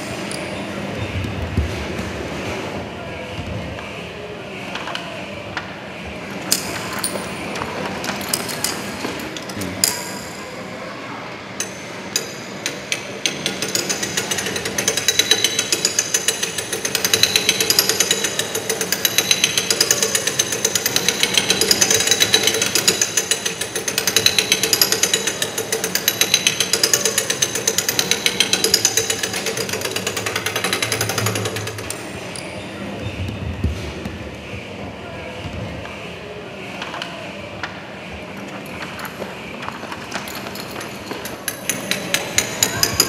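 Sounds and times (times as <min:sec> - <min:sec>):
coins clicking into slot: 0:40.1 - 0:43.0.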